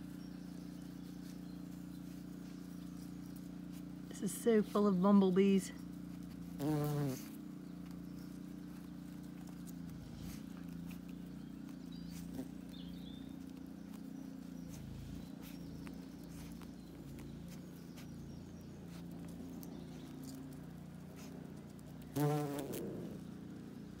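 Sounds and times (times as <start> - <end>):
bumblebee buzzing: 6.2 - 7.6, 22.0 - 23.4.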